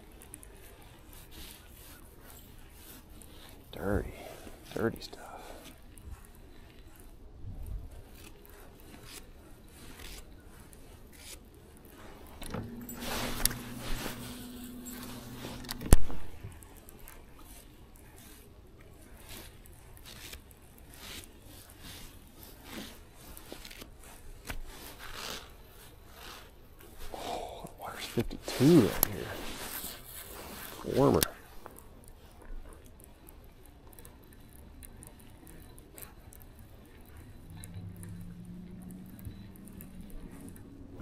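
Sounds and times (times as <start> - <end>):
electric motor humming: 12.4 - 16.4.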